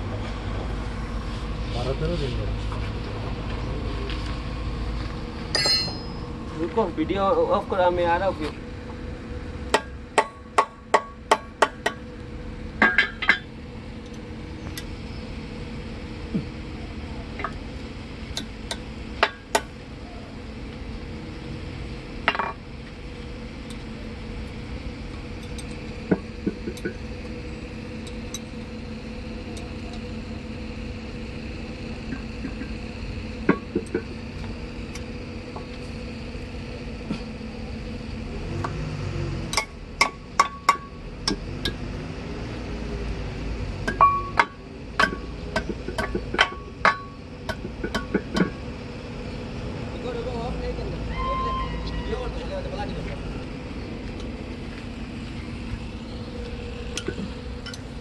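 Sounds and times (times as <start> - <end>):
steady background hum: 0.0 - 58.0
metal hand tools clinking: 5.6 - 6.2.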